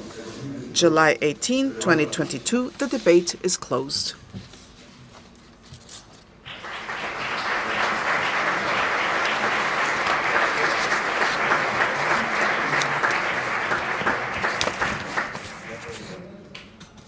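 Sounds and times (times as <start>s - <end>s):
audience applauding: 6.5s - 16.0s.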